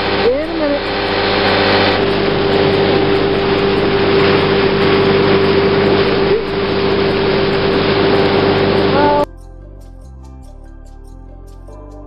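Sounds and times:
rush of wind and water: 0:00.0 - 0:09.2
outboard motor humming: 0:00.0 - 0:09.3.

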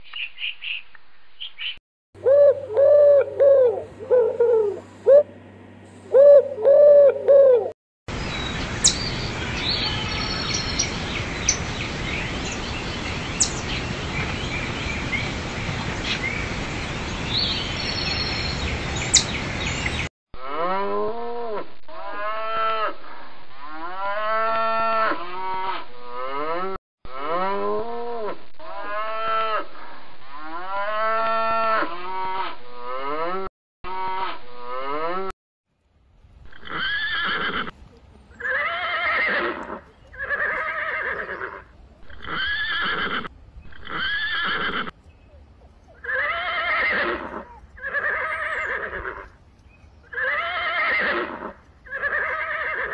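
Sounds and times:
outdoor hiss: 0:08.1 - 0:20.0
horse whinnying: 0:36.5 - 0:37.7, 0:38.4 - 0:44.9, 0:46.0 - 0:49.3, 0:50.1 - 0:52.9.

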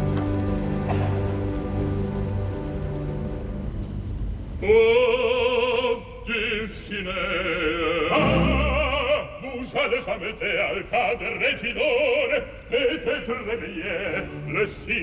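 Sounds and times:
man singing opera: 0:04.6 - 0:15.0
orchestral accompaniment: 0:08.1 - 0:09.4.

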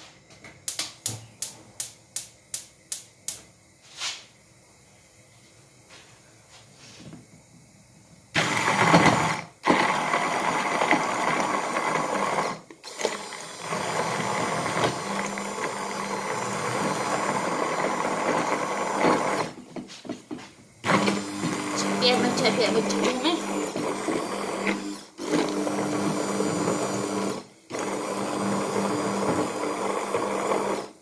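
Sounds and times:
electric blender motor running: 0:08.3 - 0:19.6, 0:20.8 - 0:31.0.

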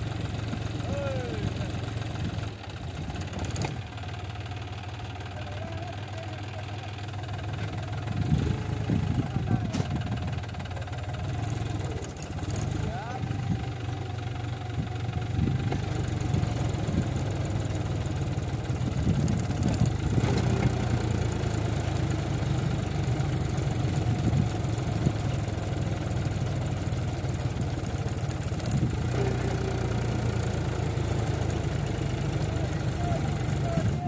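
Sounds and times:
tractor diesel engine under load: 0:00.0 - 0:34.0.

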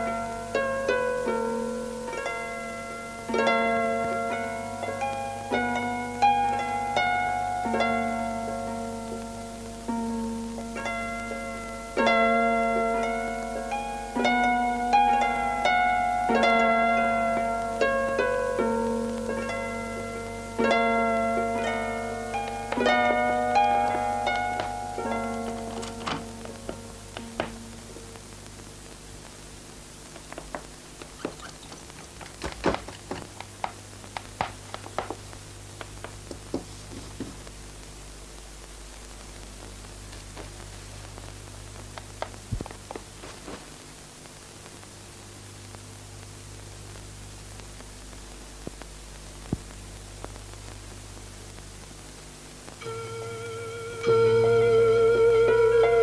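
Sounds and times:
film soundtrack hiss and hum: 0:00.0 - 0:56.0
things being handled: 0:30.1 - 0:35.2
footsteps: 0:30.1 - 0:37.6, 0:42.3 - 0:43.8.

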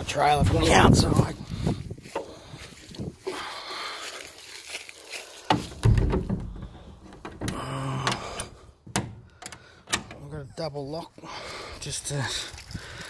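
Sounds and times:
heavy low thump: 0:05.5 - 0:08.0
sharp metallic latch clicks: 0:05.8 - 0:10.3.

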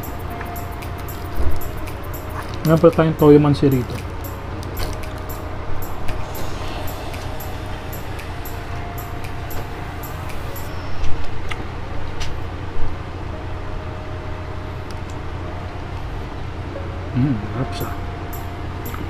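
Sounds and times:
low rumble: 0:04.0 - 0:11.5.

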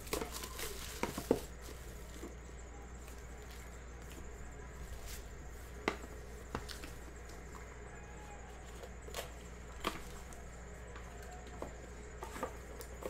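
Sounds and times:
plastic shrink wrap crinkling: 0:00.0 - 0:02.2.

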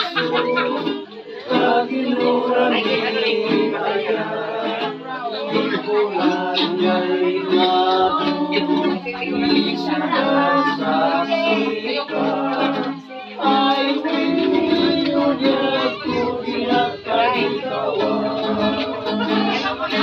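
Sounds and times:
strummed acoustic guitar: 0:00.0 - 0:20.0
ukulele: 0:00.0 - 0:20.0
voices singing together: 0:00.0 - 0:20.0.

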